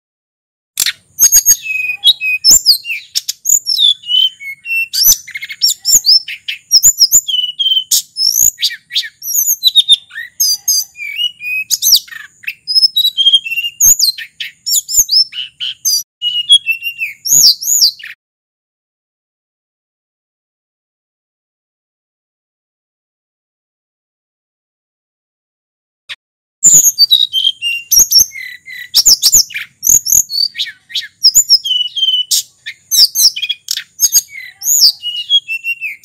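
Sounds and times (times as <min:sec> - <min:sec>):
bird singing whistled phrases: 0:00.8 - 0:18.2, 0:26.6 - 0:36.0.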